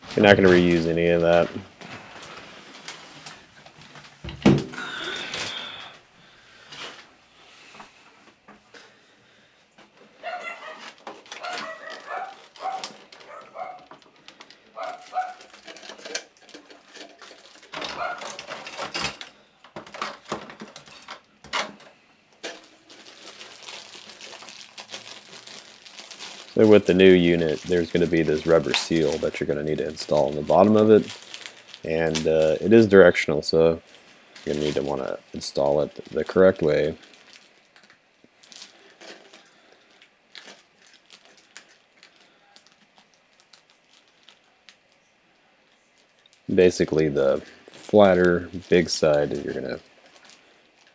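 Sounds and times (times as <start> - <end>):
plastic packaging rustling: 0.0 - 9.2, 9.8 - 50.9
plastic parts rattling: 10.2 - 32.7, 33.9 - 44.5.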